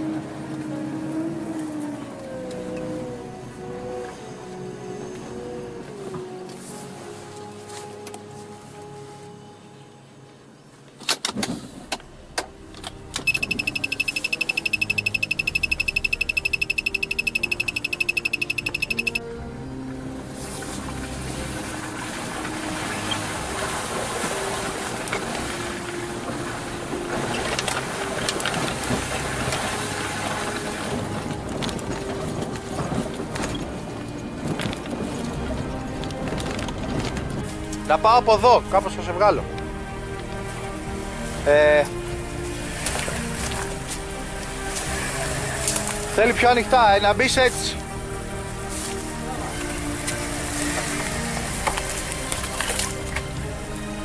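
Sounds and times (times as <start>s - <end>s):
fast high electronic beeping: 13.3s - 19.2s.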